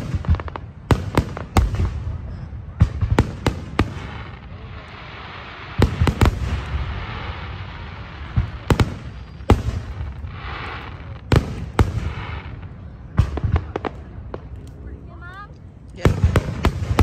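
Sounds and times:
firework shells booming: 0.0s - 4.4s, 5.7s - 7.5s, 8.2s - 14.6s, 16.0s - 17.0s.

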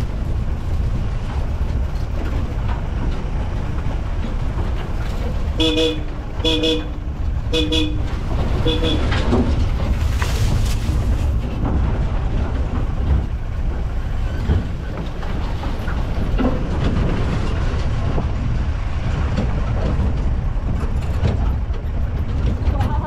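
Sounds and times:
engine and road rumble: 0.0s - 23.0s
vehicle knocks and rattles: 0.0s - 23.0s.

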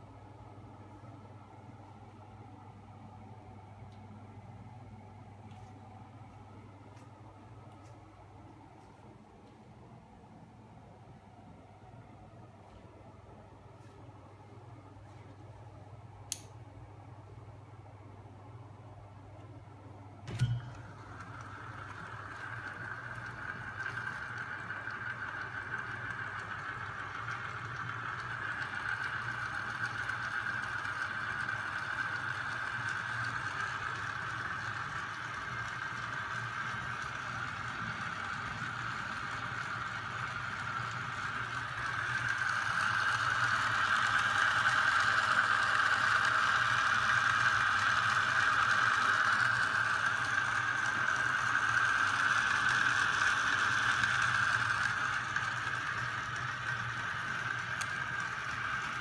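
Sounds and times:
electric motor machine whirring: 20.3s - 59.0s.

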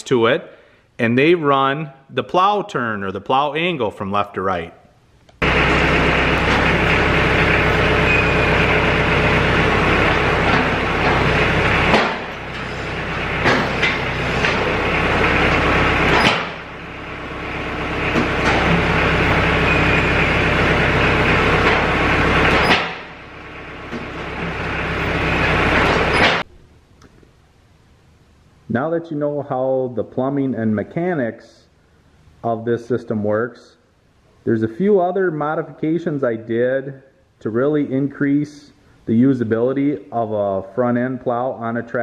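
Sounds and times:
clunks: 5.4s - 16.9s, 17.5s - 26.5s
tractor diesel engine under load: 5.4s - 26.5s.

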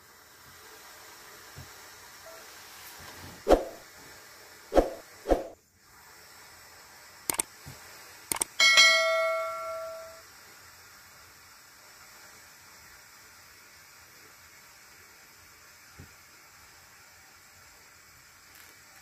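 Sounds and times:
mouse clicks: 7.3s - 7.5s
bell ding: 8.6s - 10.2s.

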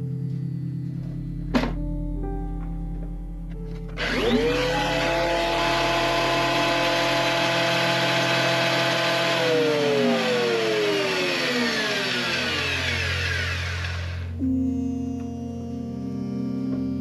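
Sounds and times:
planer motor whine: 3.9s - 16.3s.

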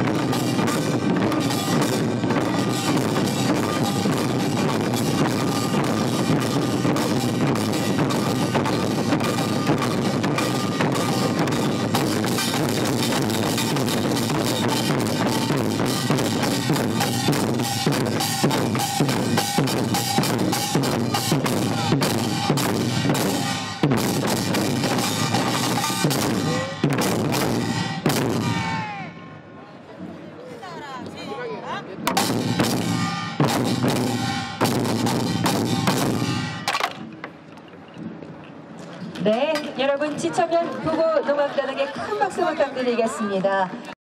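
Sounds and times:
barrel drums beaten with sticks: 0.0s - 29.1s, 32.0s - 37.2s.

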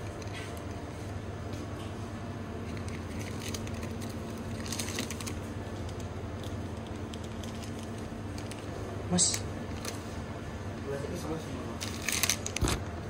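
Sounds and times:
low room hum: 0.0s - 13.0s.

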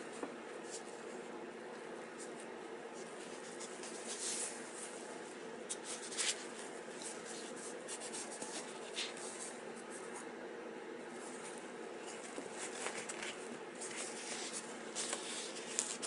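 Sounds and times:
steady low hum: 0.0s - 16.0s
nylon fabric rustling and scraping: 2.1s - 10.0s, 11.1s - 16.0s.

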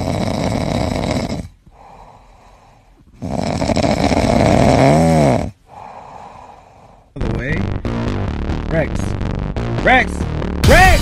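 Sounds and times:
cat snoring loudly: 0.0s - 1.9s, 3.2s - 5.6s.

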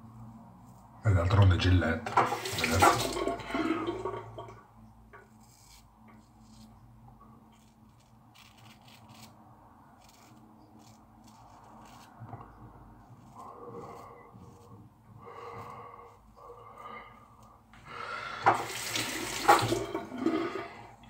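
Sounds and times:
running water: 2.1s - 4.6s, 18.4s - 20.8s
razor rasping through stubble: 5.3s - 6.7s, 7.5s - 9.4s, 10.0s - 12.3s, 13.0s - 14.7s.

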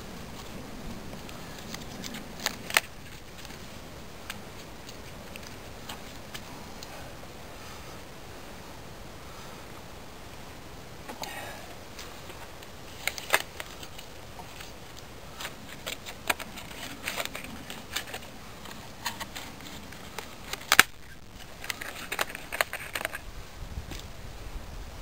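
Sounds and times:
bark peeling and tearing: 0.3s - 6.5s, 12.9s - 23.2s.

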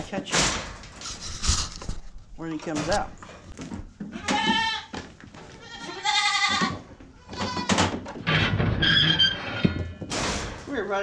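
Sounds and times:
goat kids bleating: 4.1s - 7.9s.

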